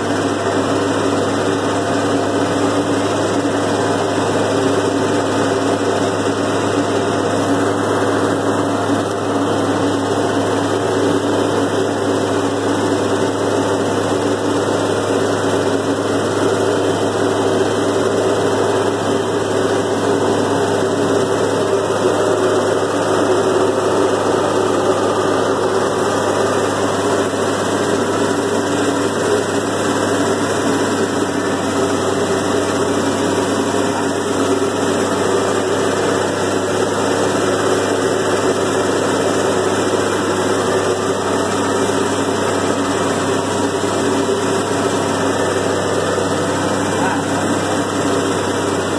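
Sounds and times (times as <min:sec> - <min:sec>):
tractor engine running: 0:00.0 - 0:48.9.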